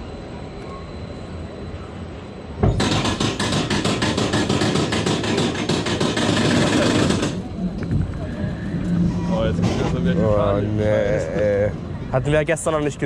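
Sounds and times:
roller coaster lift chain clatter: 0:02.7 - 0:10.5.

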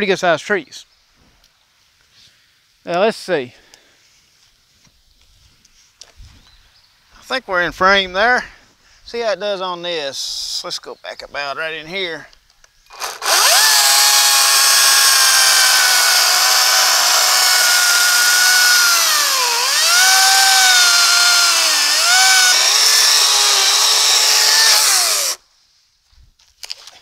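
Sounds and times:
electric chainsaw cutting wood: 0:12.9 - 0:25.4.

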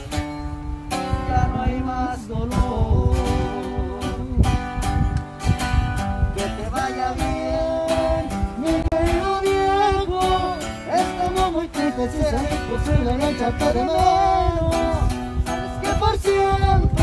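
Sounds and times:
guitar strumming: 0:00.0 - 0:17.0
person singing: 0:06.4 - 0:17.0.

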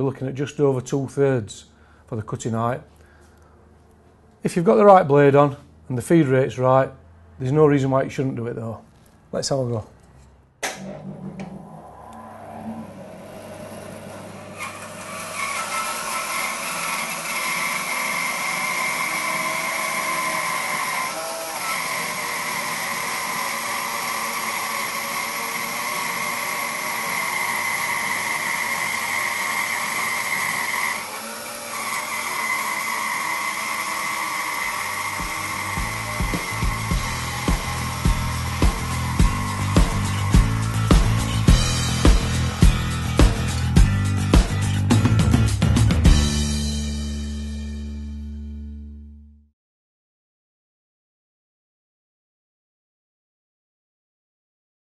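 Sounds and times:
bandsaw cutting log with whine: 0:11.6 - 0:45.4
bandsaw running: 0:13.0 - 0:47.6.

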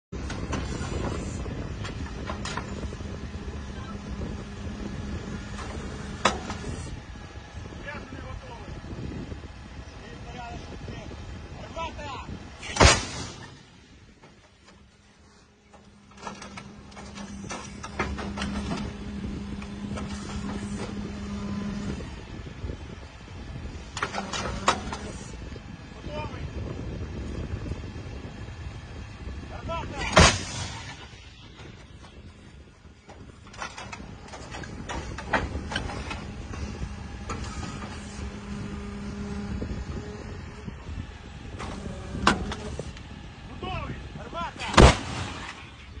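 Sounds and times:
truck engine rumbling: 0:00.0 - 0:46.0
motor humming: 0:00.2 - 0:46.0
metal clanks and knocks: 0:33.1 - 0:38.2.

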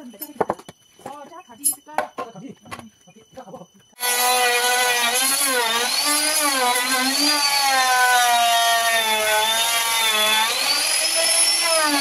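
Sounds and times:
electric hand planer cutting wood: 0:04.0 - 0:12.0.

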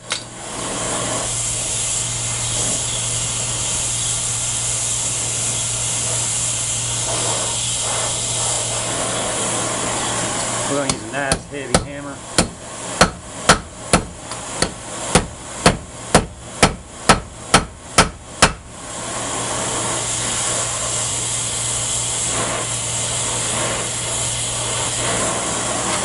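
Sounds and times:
cutting torch flame hissing: 0:00.0 - 0:26.0
hammer striking metal on anvil: 0:10.9 - 0:18.6.

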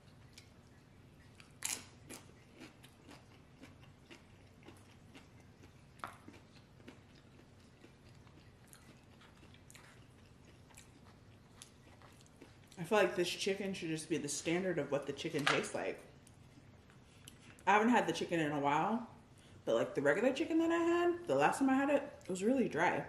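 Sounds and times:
chewing chip crunches: 0:00.0 - 0:12.8.

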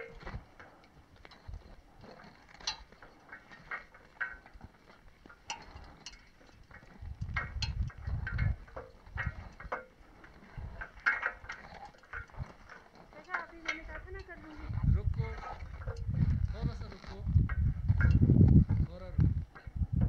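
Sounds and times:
metal gear clicking and clinking: 0:00.0 - 0:18.3
low rumble on microphone: 0:06.7 - 0:13.1, 0:13.8 - 0:20.0.

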